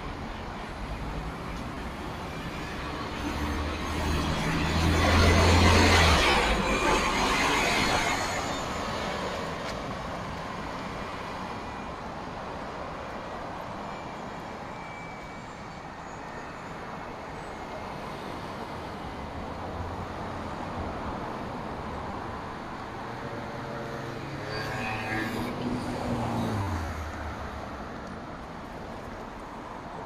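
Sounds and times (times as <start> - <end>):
bus passing and pulling away: 0.0 - 30.0
street traffic noise: 0.0 - 30.0.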